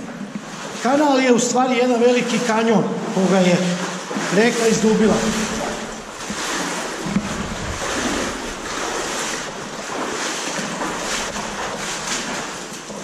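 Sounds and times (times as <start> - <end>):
splashes from wading: 0.4 - 13.0
river water rushing: 3.1 - 13.0.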